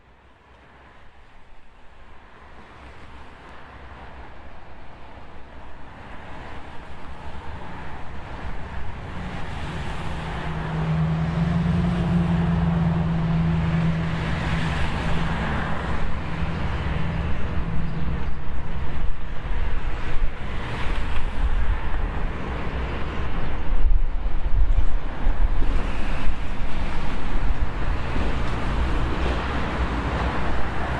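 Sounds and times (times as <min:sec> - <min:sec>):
road noise: 0:00.0 - 0:30.9
wind rumbling on microphone: 0:00.7 - 0:30.9
vehicle engine hum: 0:06.8 - 0:30.9.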